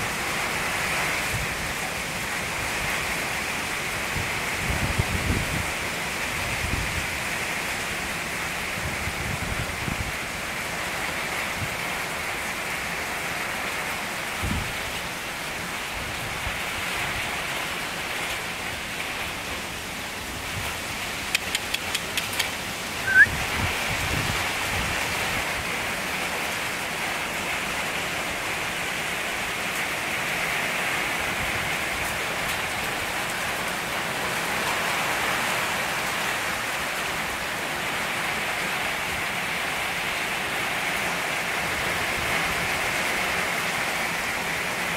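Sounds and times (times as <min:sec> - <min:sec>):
heavy rain pouring: 0:00.0 - 0:44.9
quick clicks: 0:21.3 - 0:23.2
high rising chirp: 0:23.0 - 0:23.3.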